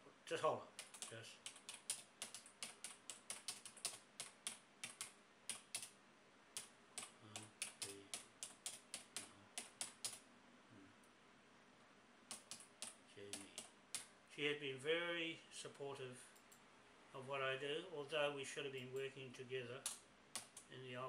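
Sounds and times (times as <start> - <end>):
computer keyboard typing: 0.8 - 5.9, 6.6 - 10.2, 12.3 - 14.1, 19.8 - 20.7.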